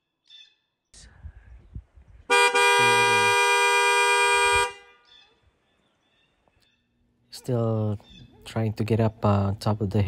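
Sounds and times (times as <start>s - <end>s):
car horn two-note blast: 2.3s - 5.0s.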